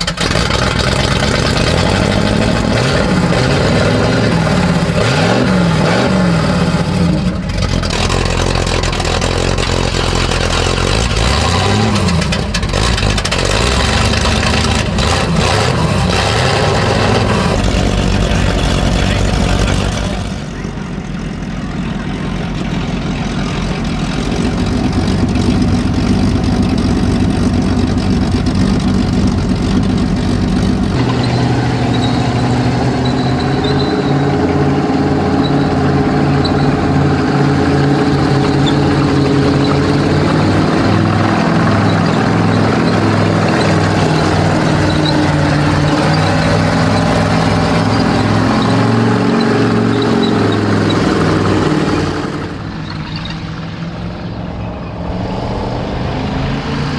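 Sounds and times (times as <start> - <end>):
tank engine running: 0.0 - 56.9.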